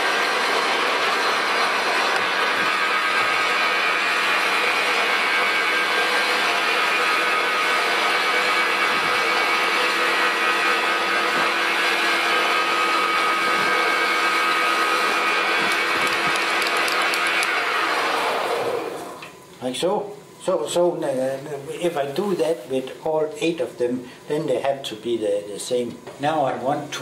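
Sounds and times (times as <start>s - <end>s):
metal lathe whining: 0.0s - 19.3s.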